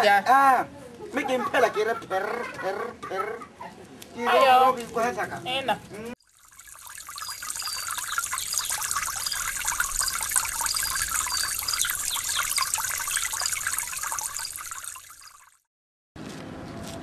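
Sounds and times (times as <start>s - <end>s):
trickling running water: 6.2s - 15.7s
short high chirps: 6.6s - 15.5s.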